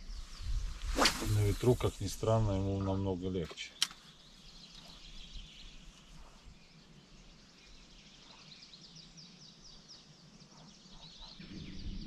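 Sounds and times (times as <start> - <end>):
steady high hiss: 0.0 - 3.2.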